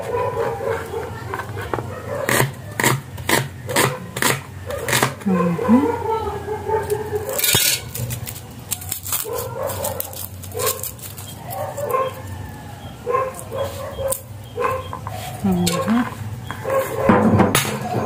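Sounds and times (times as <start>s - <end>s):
dog barking: 0.0s - 2.9s, 3.7s - 7.5s, 9.1s - 12.3s, 13.0s - 15.4s, 16.6s - 18.0s.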